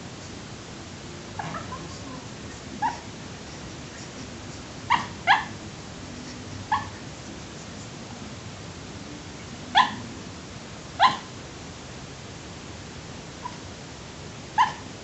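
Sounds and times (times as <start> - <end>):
steady hiss: 0.0 - 15.0
puppy barking and yipping: 1.4 - 2.1, 2.8 - 3.1, 4.8 - 5.6, 6.6 - 7.0, 9.7 - 10.0, 11.0 - 11.3, 13.4 - 13.6, 14.6 - 14.9.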